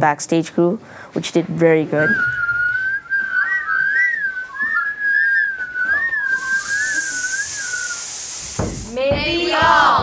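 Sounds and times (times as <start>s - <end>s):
lower whistle: 2.0s - 8.9s
high wavering whistle: 2.0s - 9.0s
steady hiss: 6.1s - 9.0s.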